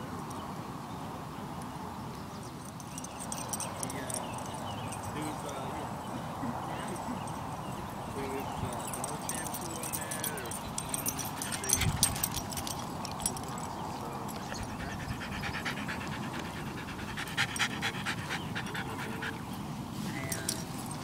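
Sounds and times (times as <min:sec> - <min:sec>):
dog panting: 0:09.0 - 0:13.4, 0:14.3 - 0:19.5.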